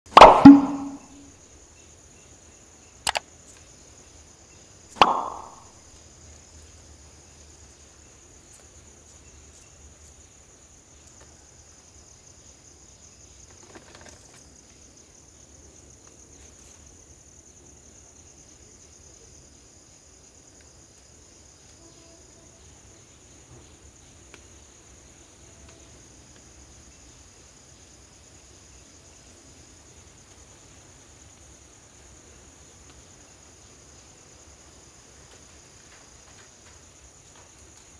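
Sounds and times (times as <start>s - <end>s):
high insect hum: 0.1s - 37.9s
mouse clicks: 0.2s - 1.0s
click with ringing ding: 0.4s - 1.1s.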